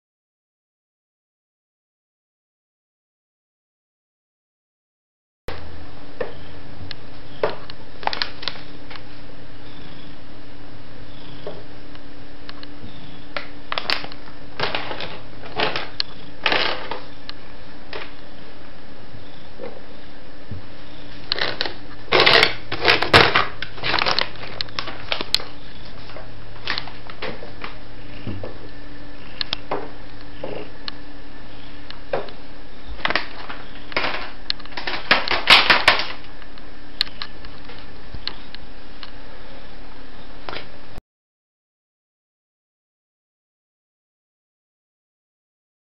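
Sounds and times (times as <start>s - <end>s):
steady low hum: 5.5s - 41.0s
plastic bag crinkling: 13.7s - 17.1s, 21.2s - 27.8s, 33.0s - 36.3s.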